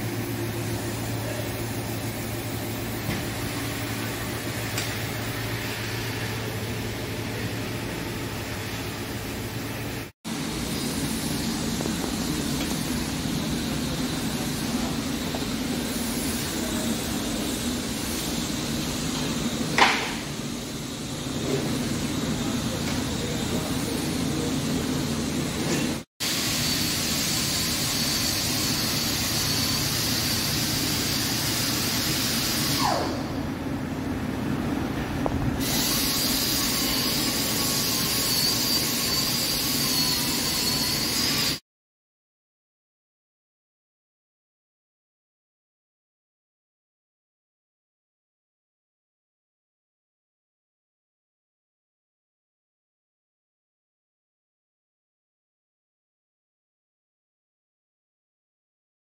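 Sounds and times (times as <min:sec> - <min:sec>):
lathe machining noise: 0:00.0 - 0:33.0, 0:35.6 - 0:41.6
high steady whine and hiss: 0:00.0 - 0:41.6.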